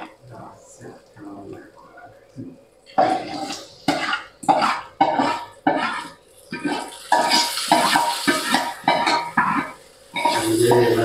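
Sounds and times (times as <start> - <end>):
steel ladle clanking on pan: 7.1 - 11.0.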